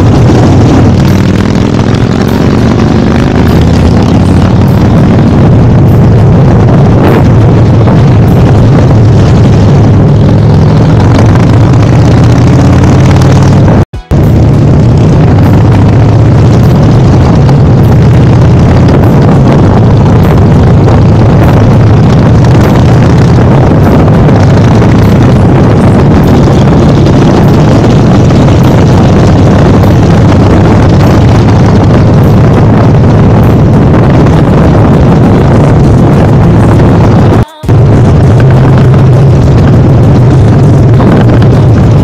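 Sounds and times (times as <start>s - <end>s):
motorcycle engine running: 0.0s - 42.0s
wind rushing over microphone: 0.0s - 42.0s.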